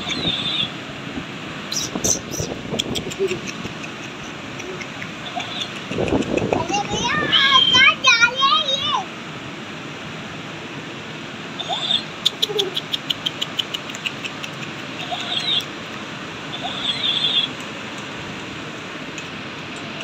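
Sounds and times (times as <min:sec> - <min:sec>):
animal squeaks: 0:00.0 - 0:00.7, 0:01.7 - 0:05.9, 0:11.6 - 0:14.4, 0:15.0 - 0:15.7, 0:16.5 - 0:17.6
rapid chirps: 0:01.7 - 0:07.0, 0:11.6 - 0:15.7, 0:16.5 - 0:18.1.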